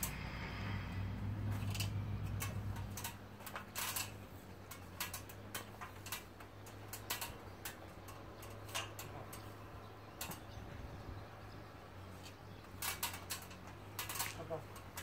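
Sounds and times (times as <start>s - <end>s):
low hum: 0.0s - 5.3s
dog claws clicking on metal ladder: 1.5s - 10.7s, 12.2s - 15.0s.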